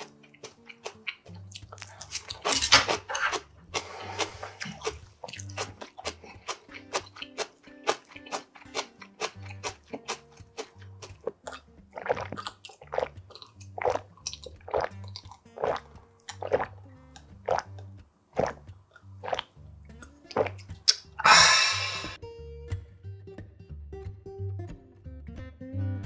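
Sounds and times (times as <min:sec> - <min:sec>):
background music with bass line: 0:00.0 - 0:26.0
person gulping water: 0:08.2 - 0:22.2
breathy exhale: 0:21.2 - 0:22.2.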